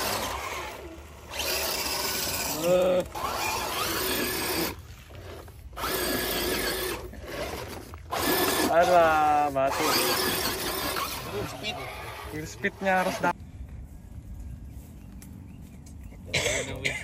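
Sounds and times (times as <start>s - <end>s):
toy car electric motors whining: 0.0s - 13.4s.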